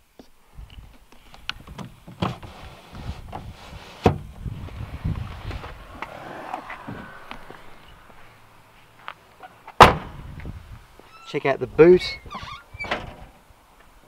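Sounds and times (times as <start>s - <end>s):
low rumble: 4.4s - 9.1s.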